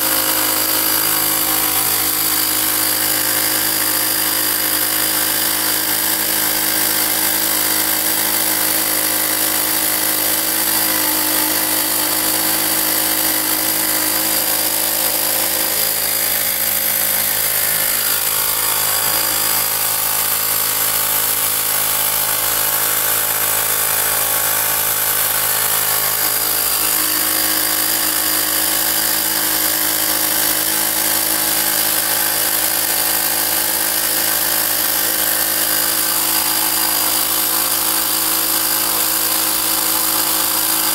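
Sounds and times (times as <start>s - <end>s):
air compressor buzzing: 0.0s - 40.9s.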